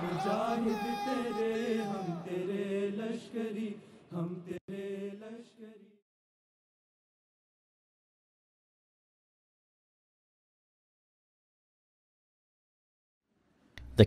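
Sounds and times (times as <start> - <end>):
crowd of men chanting: 0.0 - 5.9.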